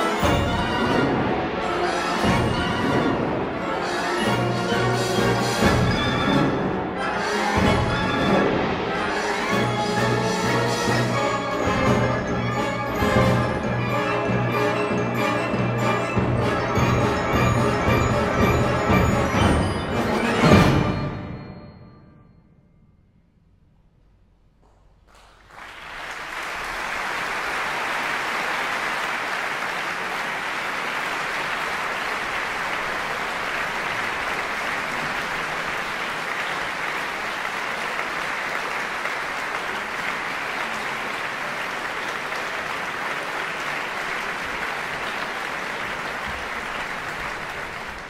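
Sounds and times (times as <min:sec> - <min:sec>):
large audience applauding: 0:25.0 - 0:48.0.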